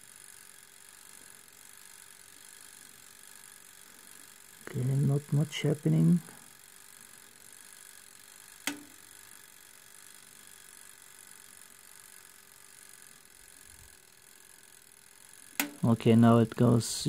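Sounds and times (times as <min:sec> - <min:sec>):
mechanical timer ticking: 0:00.0 - 0:16.8
toaster oven running: 0:00.0 - 0:17.0
sharp timer click: 0:08.5 - 0:09.2, 0:15.4 - 0:16.6.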